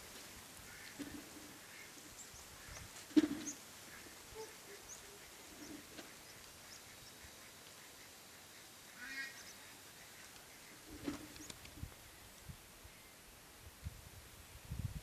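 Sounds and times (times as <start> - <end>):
faint bird chirps: 1.7 - 11.6.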